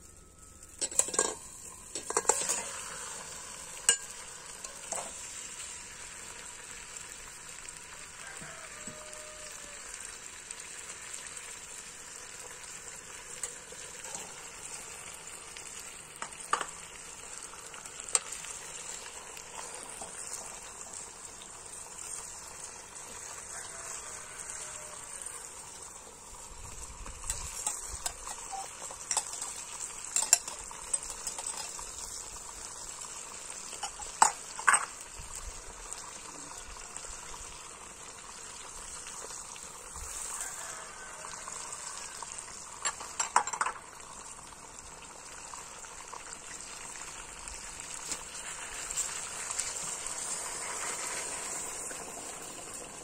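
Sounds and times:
crackling hiss of wood fire: 0.0 - 53.0
metal skimmer clinking on pot: 0.8 - 3.1, 3.8 - 5.3, 27.3 - 31.9, 33.7 - 35.0, 42.8 - 43.9.

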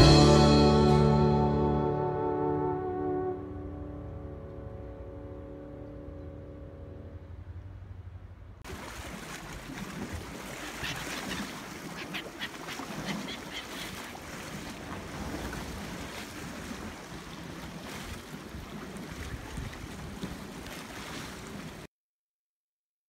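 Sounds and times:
choppy water: 8.3 - 21.9
gulls calling: 9.5 - 16.0
wind on microphone: 15.0 - 21.8.

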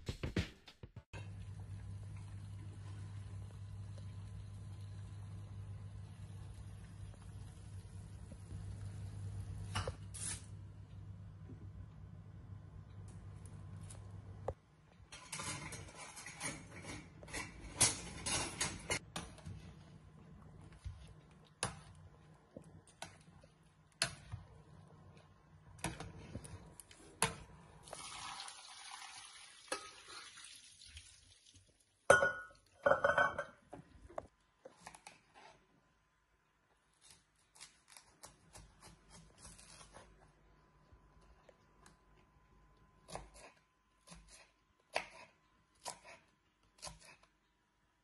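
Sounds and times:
boiling water: 27.7 - 33.1.

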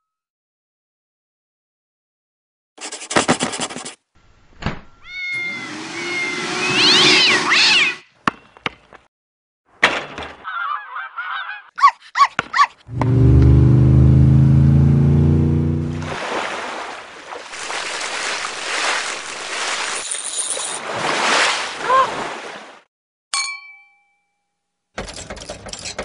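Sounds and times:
hissing with whistling cries: 5.3 - 8.0.

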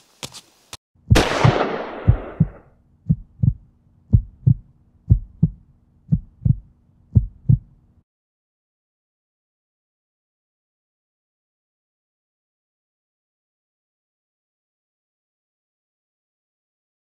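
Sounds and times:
heartbeat thumps: 1.0 - 7.8
shotgun blast: 1.1 - 2.6.

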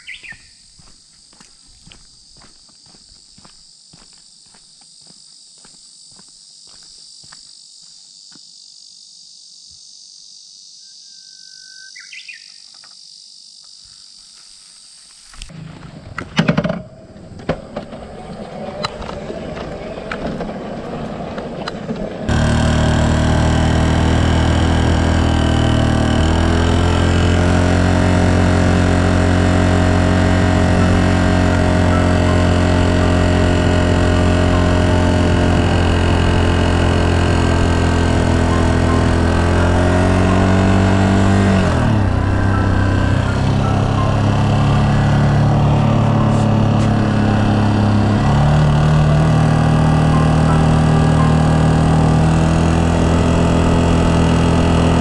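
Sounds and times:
short bird call: 0.0 - 0.6
motorcycle engine running: 0.0 - 4.1, 21.8 - 55.0
footsteps: 0.0 - 8.0
insects buzzing: 0.0 - 15.5.

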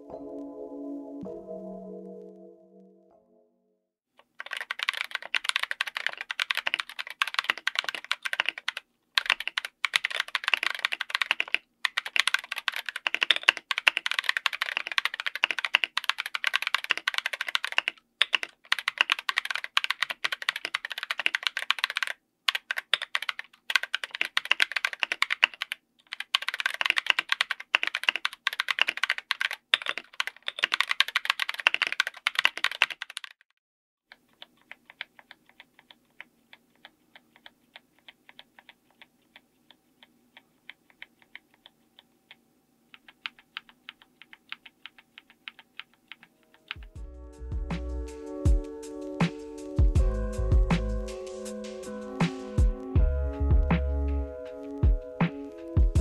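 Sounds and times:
mechanical keyboard typing: 4.2 - 33.5, 34.1 - 47.0.

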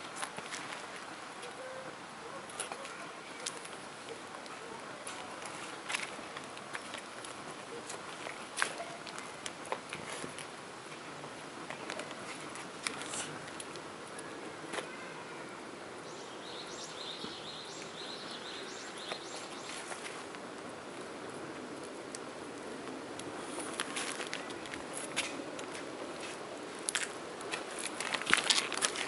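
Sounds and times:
outdoor background noise: 0.0 - 29.0.

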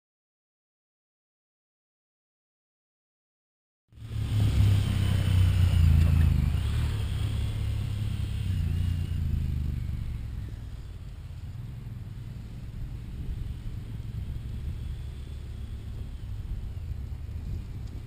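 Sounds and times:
engines accelerating hard: 3.9 - 18.0.

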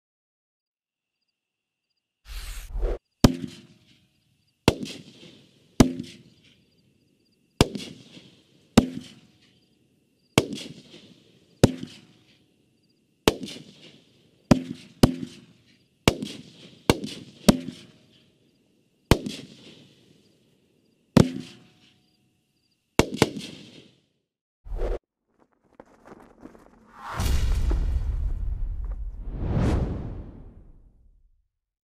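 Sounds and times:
firework bangs with crackling: 4.7 - 6.2, 7.6 - 9.3, 10.4 - 12.2, 13.3 - 15.5, 16.1 - 17.9, 19.1 - 20.2, 25.4 - 30.6.

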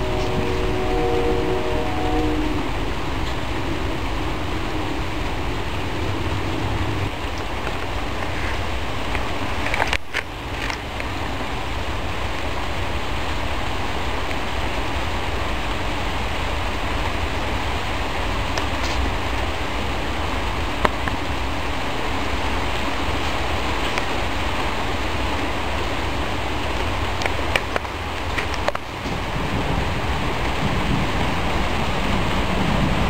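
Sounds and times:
heavy rain falling: 0.0 - 33.0.

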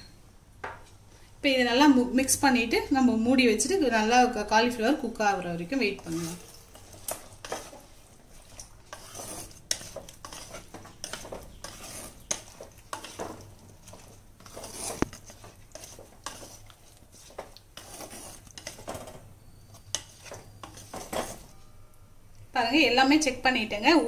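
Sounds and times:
wooden spatula scraping clay pot: 4.8 - 21.8.

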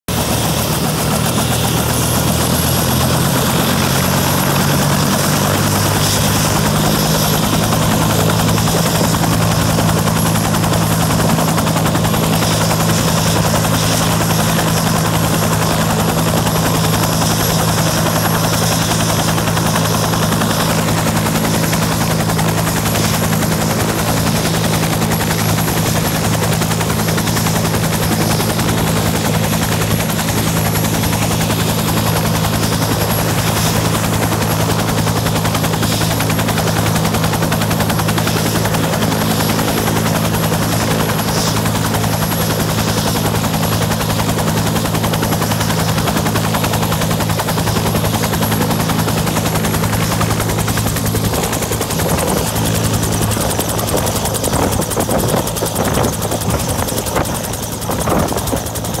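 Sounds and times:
helicopter turbine and rotor: 0.0 - 59.0.

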